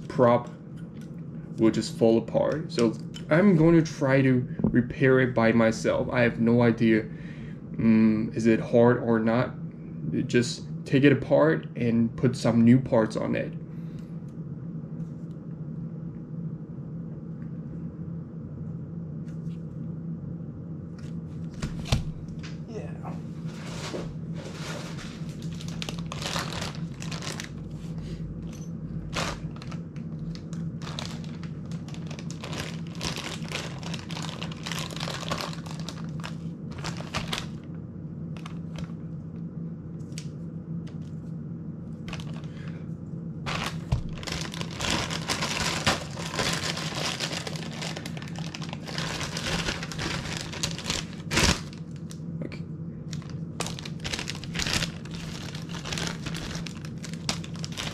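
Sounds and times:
steady low hum: 0.0s - 57.9s
plastic bag crinkling: 24.5s - 27.8s, 29.0s - 37.7s, 38.4s - 39.0s, 42.0s - 42.8s, 43.4s - 52.2s, 53.1s - 57.9s.

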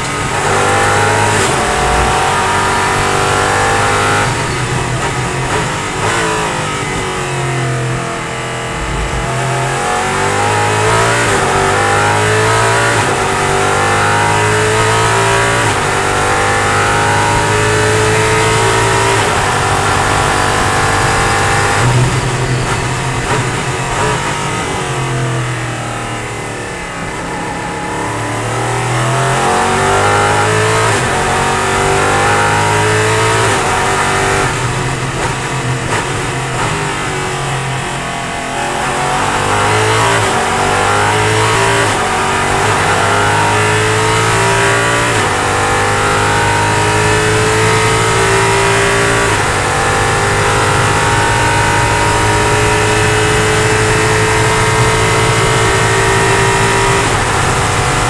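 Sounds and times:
engine accelerating through upshifts: 0.0s - 58.0s
race car engine revving: 0.0s - 58.0s.

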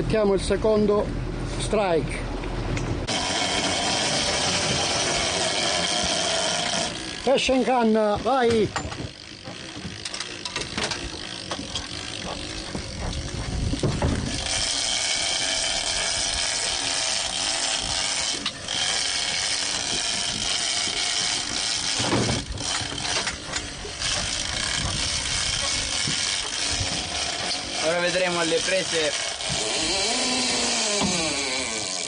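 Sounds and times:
fishing reel ratchet clicking and screaming: 3.1s - 7.9s, 14.2s - 32.0s.

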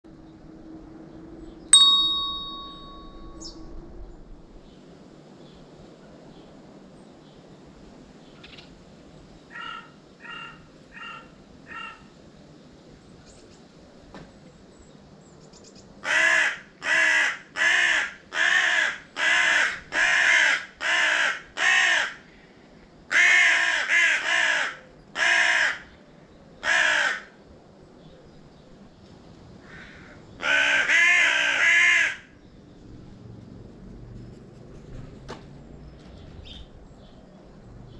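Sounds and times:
crow cawing: 9.5s - 12.1s, 16.0s - 22.2s, 23.1s - 25.9s, 26.6s - 27.4s, 29.6s - 32.4s.

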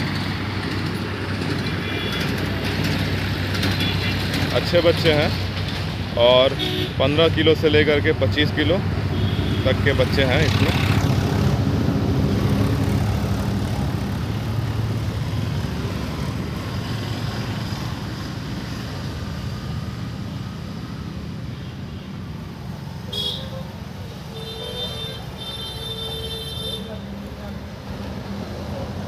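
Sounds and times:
car horn tooting: 3.8s - 4.2s, 6.6s - 7.0s, 9.1s - 9.9s, 23.1s - 27.0s.

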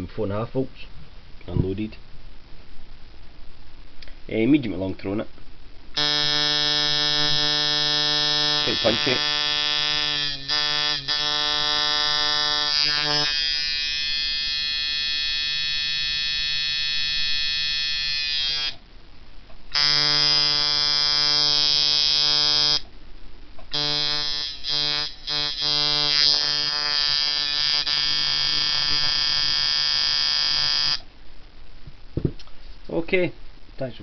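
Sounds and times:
tattoo machine buzzing: 6.0s - 18.8s, 19.7s - 22.9s, 23.7s - 31.0s.

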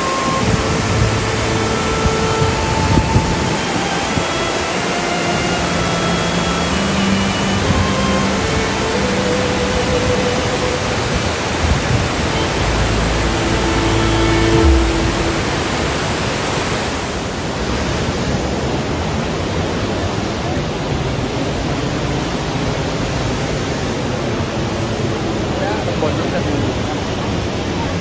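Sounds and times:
faint held tones: 0.0s - 16.9s
waterfall rushing: 0.0s - 28.0s.

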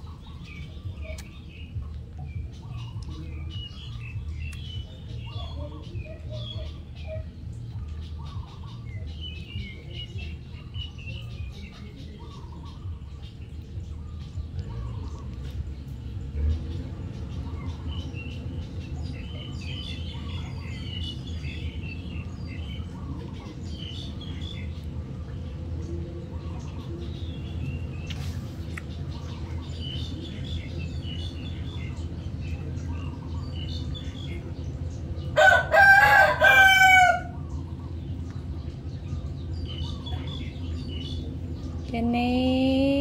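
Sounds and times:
small birds chirping: 0.0s - 43.0s
steady low rumble: 0.0s - 43.0s
rooster crowing: 35.4s - 37.4s.

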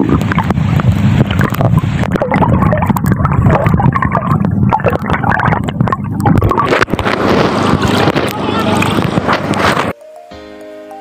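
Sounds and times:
muffled underwater churning: 0.0s - 9.9s
water gurgling against case: 0.0s - 9.9s.

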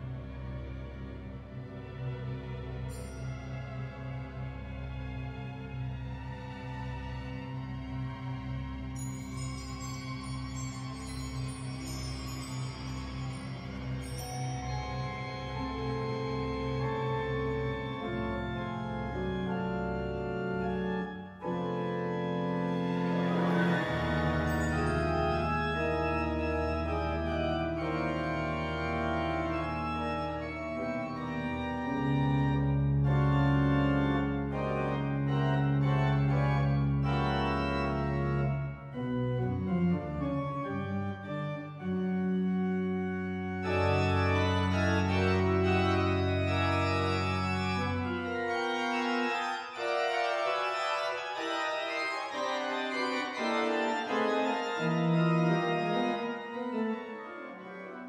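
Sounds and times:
pipe organ chords: 13.1s - 58.0s.

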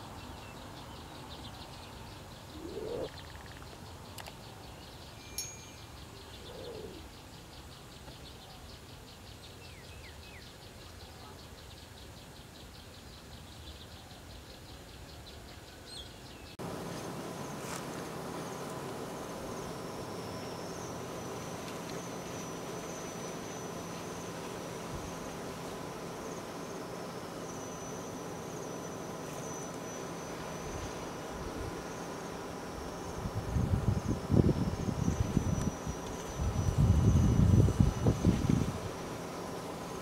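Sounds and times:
insects chirping: 0.0s - 13.6s, 14.5s - 40.0s
bird calls: 0.1s - 16.6s
steady hum: 16.6s - 40.0s.

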